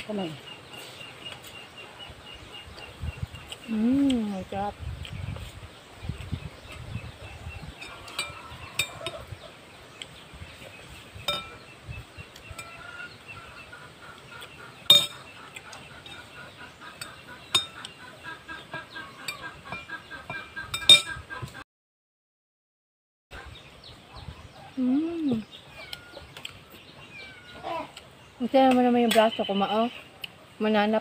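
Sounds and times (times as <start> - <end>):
birds calling: 0.0 - 21.6, 23.3 - 31.0
cutlery clinking on plates: 7.8 - 9.3, 11.2 - 11.6, 14.9 - 15.2, 19.2 - 21.2.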